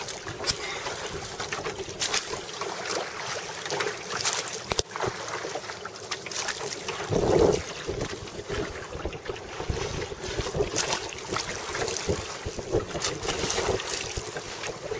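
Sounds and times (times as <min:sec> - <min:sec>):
sea water sloshing against boat: 0:00.0 - 0:14.9
wind buffeting microphone: 0:07.0 - 0:14.9.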